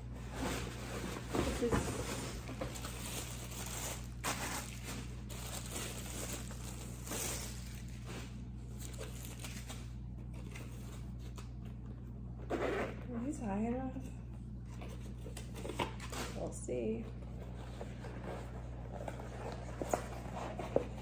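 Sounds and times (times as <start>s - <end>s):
plastic bag crinkling: 1.6s - 9.9s.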